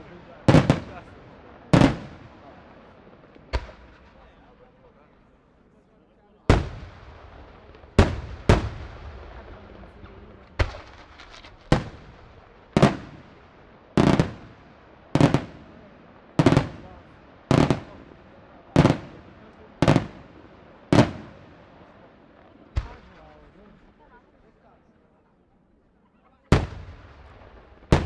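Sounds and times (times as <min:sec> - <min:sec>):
firework shells booming: 0:00.0 - 0:04.4, 0:06.5 - 0:21.7, 0:26.5 - 0:28.0.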